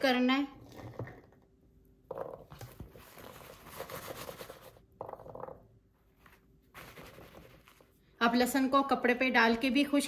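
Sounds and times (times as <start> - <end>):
paper towel rustling: 6.0 - 8.0.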